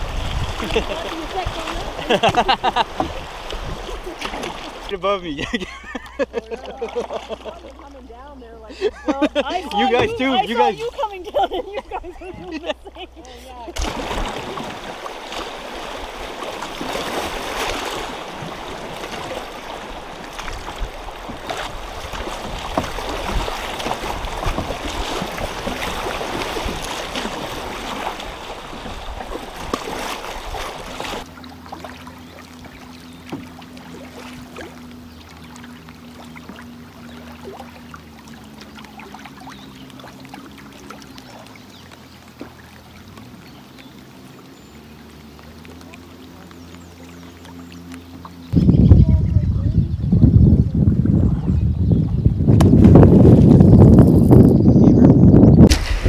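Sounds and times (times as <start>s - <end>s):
wind buffeting microphone: 0.0s - 6.0s, 9.6s - 31.2s, 48.4s - 56.0s
canoe paddle splashing: 0.0s - 48.9s, 50.6s - 54.5s, 55.6s - 56.0s
choppy river water: 0.0s - 56.0s.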